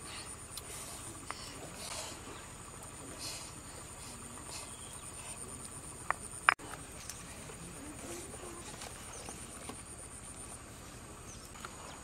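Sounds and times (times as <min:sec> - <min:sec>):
insects buzzing: 0:00.0 - 0:12.0.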